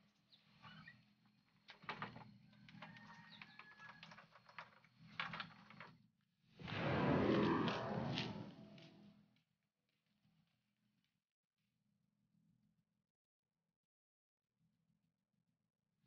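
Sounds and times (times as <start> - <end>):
rushing noise: 6.6 - 8.8.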